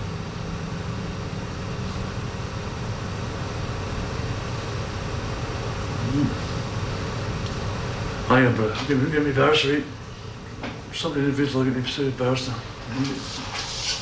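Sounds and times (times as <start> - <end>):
low hum and hiss: 0.0 - 14.0
brief murmur: 6.0 - 6.4.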